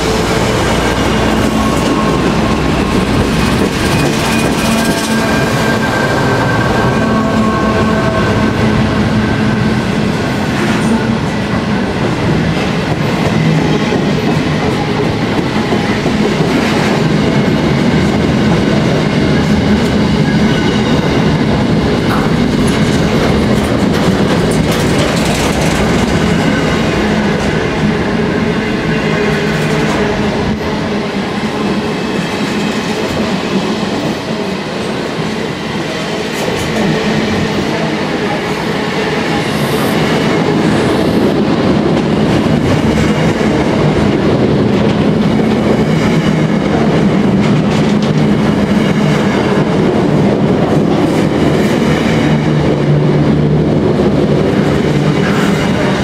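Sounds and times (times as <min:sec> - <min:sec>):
freight train wheels rumbling: 0:00.0 - 0:56.0
wheels clacking over rail joints: 0:22.0 - 0:27.8.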